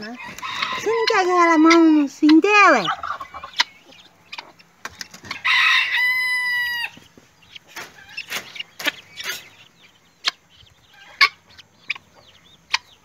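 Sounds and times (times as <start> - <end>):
rooster crowing: 0.1 - 1.8, 5.3 - 7.0
short sharp poultry calls: 0.2 - 13.0.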